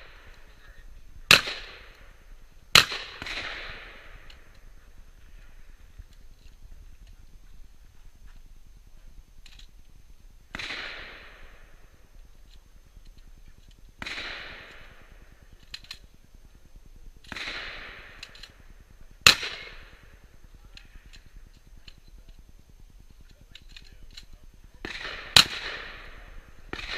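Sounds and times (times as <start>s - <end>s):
shotgun shots echoing: 1.3s - 6.1s, 10.5s - 12.1s, 14.0s - 16.0s, 17.2s - 21.0s, 24.8s - 26.9s.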